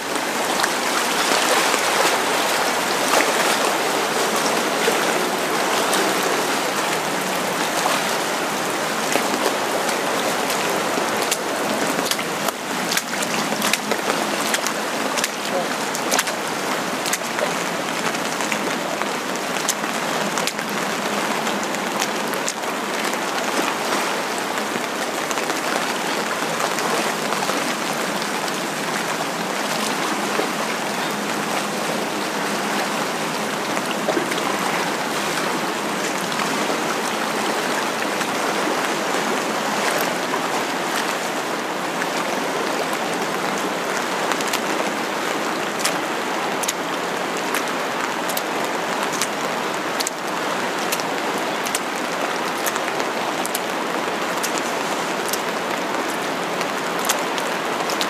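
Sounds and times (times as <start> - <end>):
raindrops ticking close by: 0.0 - 58.0.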